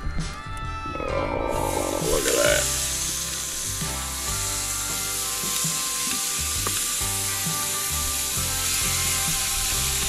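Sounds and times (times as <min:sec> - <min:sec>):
background music with bass line: 0:00.0 - 0:10.0
chicken sizzling on a grill: 0:02.0 - 0:10.0.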